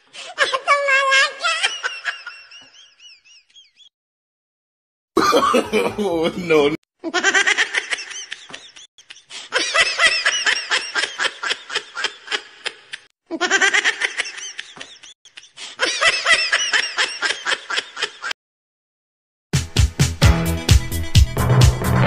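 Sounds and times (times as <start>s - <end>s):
high-pitched cackling laughter: 0.4s - 3.9s, 5.2s - 6.0s, 7.0s - 18.4s.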